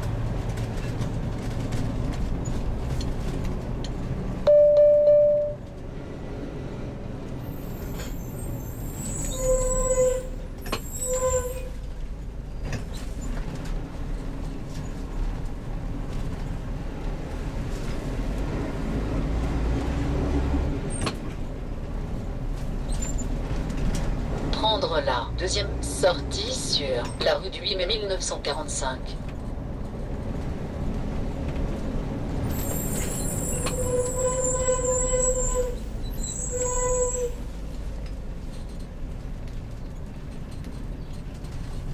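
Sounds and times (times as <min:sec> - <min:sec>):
truck engine rumble: 0:00.0 - 0:04.5, 0:05.5 - 0:41.9
loud steady horn tones: 0:33.4 - 0:35.9.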